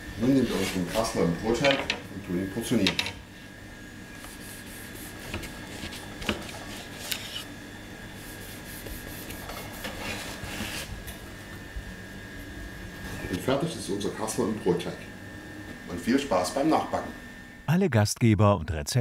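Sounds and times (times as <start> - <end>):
knife sawing through bread crust: 0.3 - 1.2, 4.2 - 7.5, 8.1 - 10.9.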